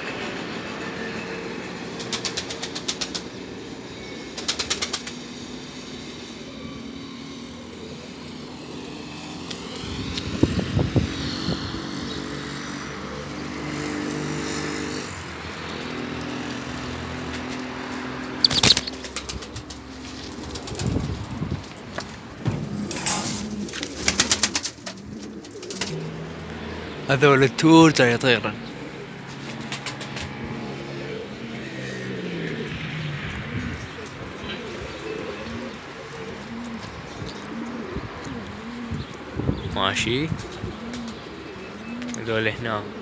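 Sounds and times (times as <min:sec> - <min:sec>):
road traffic hum: 0:00.0 - 0:43.0
pigeon wings flapping: 0:02.0 - 0:03.4, 0:04.4 - 0:05.4, 0:13.4 - 0:22.0, 0:22.8 - 0:26.1, 0:29.3 - 0:30.4.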